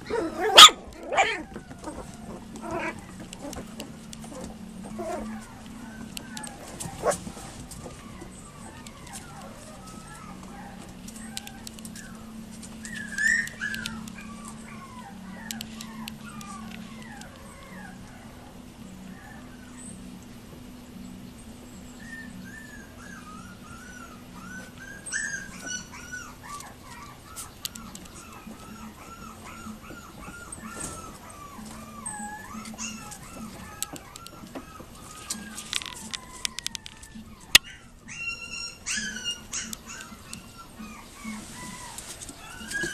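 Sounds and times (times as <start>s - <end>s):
puppies whimpering and yipping: 0.0s - 42.9s
sharp clicks: 11.2s - 14.3s.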